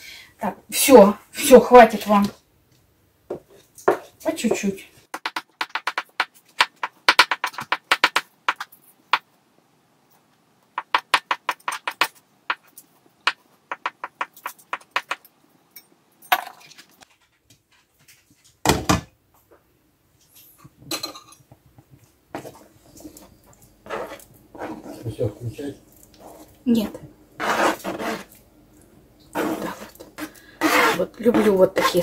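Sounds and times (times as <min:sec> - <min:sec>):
knife scraping cutting board: 0:23.8 - 0:25.1, 0:27.4 - 0:28.4, 0:29.3 - 0:32.0.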